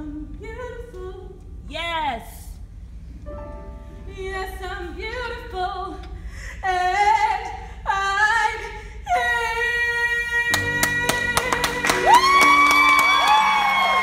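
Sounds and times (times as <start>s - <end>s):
woman singing unaccompanied: 0.0s - 2.0s, 4.1s - 12.6s.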